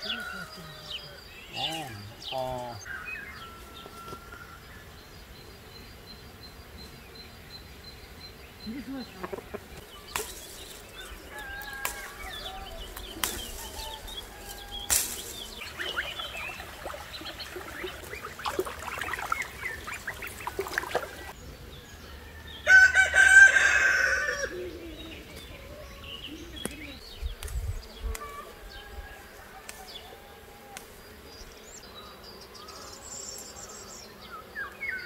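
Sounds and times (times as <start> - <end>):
rooster crowing: 0.0 - 1.3, 2.9 - 4.7, 10.9 - 15.8, 22.0 - 24.9, 28.2 - 30.8
chickens clucking: 8.7 - 21.4.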